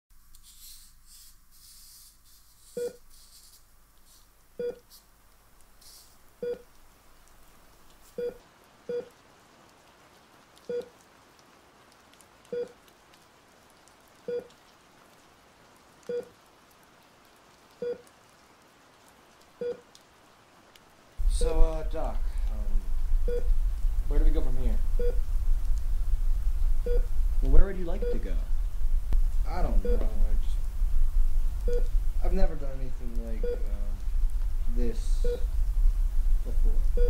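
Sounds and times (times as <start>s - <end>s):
faint hiss: 0.1s - 9.7s, 19.4s - 37.0s
electronic beep: 29.7s - 30.1s.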